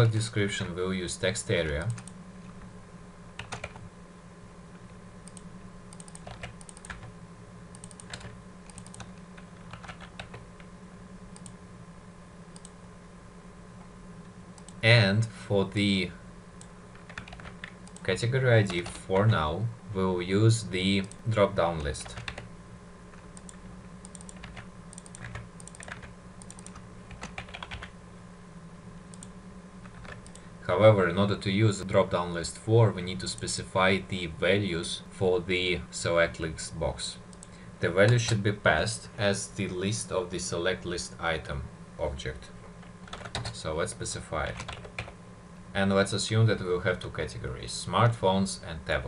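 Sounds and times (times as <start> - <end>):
low electrical hum: 0.0 - 49.0
typing on computer keyboard: 3.4 - 3.8, 5.3 - 7.1, 7.8 - 10.4, 17.0 - 18.0, 24.1 - 27.9, 43.1 - 43.6.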